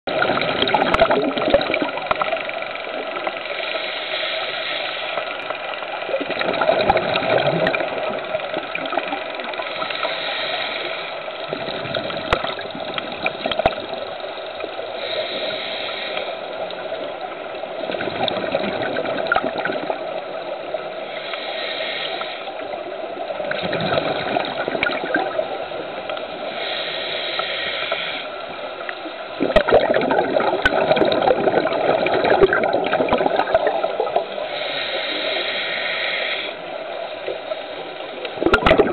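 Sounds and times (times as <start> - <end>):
underwater wash: 0.0 - 38.9
rumbling bubbles: 0.1 - 3.6, 5.3 - 10.1, 11.3 - 14.8, 16.7 - 20.9, 22.6 - 26.3, 29.0 - 34.6, 37.2 - 38.9
regulator hissing inhalation: 3.4 - 5.6, 9.6 - 11.7, 14.9 - 16.6, 21.0 - 22.8, 26.4 - 28.6, 34.2 - 38.0.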